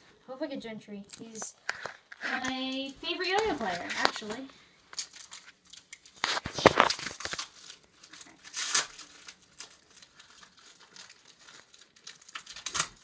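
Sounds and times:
card wrapper tearing and crinkling: 3.5 - 13.0.

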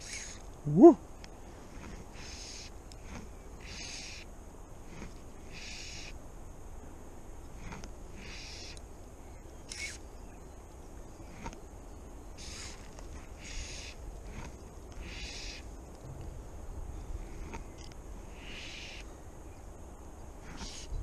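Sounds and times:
fly line hissing through fingers: 0.0 - 0.9, 1.6 - 6.2, 7.4 - 8.9, 9.6 - 10.0, 12.4 - 15.8, 17.2 - 19.1, 20.4 - 21.0.

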